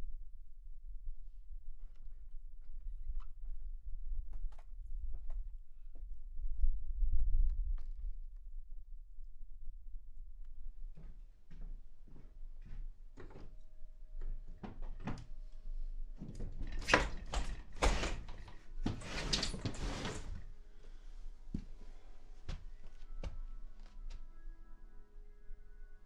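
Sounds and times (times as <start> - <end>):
sliding glass door opening: 16.2 - 20.5.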